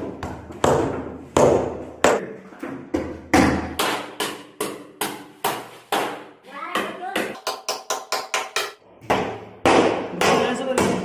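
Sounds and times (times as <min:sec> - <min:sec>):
hammer striking plywood: 0:02.9 - 0:11.0.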